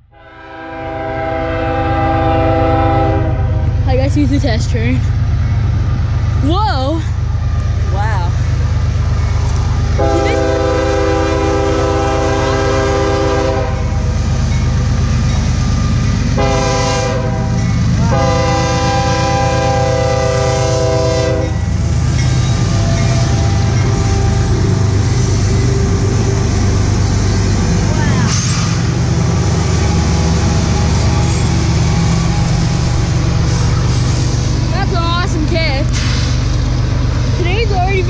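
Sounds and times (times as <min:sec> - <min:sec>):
diesel locomotive rumble: 0:00.0 - 0:38.0
locomotive air horn blasts: 0:00.1 - 0:03.6, 0:10.0 - 0:14.1, 0:16.4 - 0:21.6.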